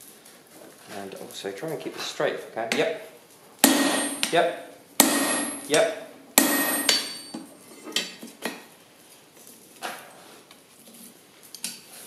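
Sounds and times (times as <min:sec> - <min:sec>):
metal tools clinking on anvil: 0:03.6 - 0:04.4, 0:05.0 - 0:05.8, 0:06.4 - 0:08.2.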